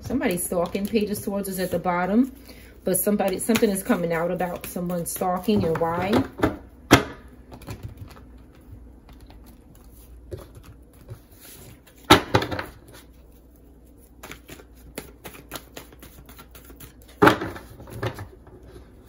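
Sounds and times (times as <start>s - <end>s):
cards being shuffled: 3.2s - 5.8s, 12.9s - 17.2s.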